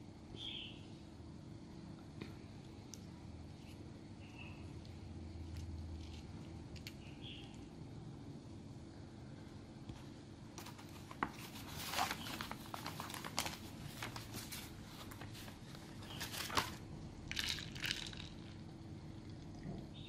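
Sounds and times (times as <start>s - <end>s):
paper rustling: 10.6s - 16.9s.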